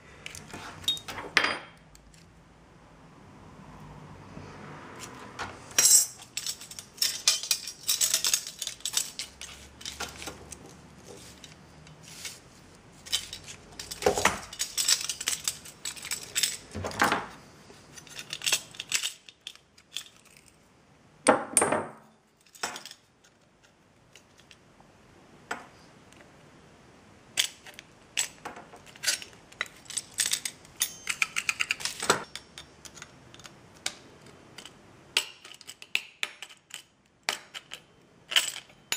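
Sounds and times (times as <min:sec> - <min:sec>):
metal parts clinking on wooden desk: 0:00.2 - 0:02.2, 0:05.4 - 0:12.4, 0:13.0 - 0:20.5, 0:21.6 - 0:23.0, 0:27.4 - 0:34.0, 0:34.6 - 0:38.9
metal parts rattling: 0:05.6 - 0:20.6, 0:27.4 - 0:33.5, 0:34.6 - 0:38.9.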